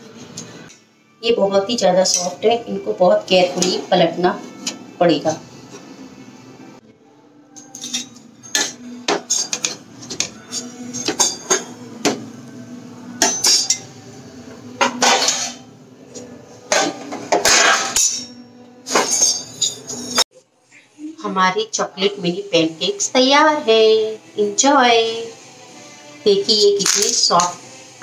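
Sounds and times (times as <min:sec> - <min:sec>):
metal spatula scraping griddle: 0:14.8 - 0:15.7, 0:16.7 - 0:18.3, 0:18.9 - 0:20.2.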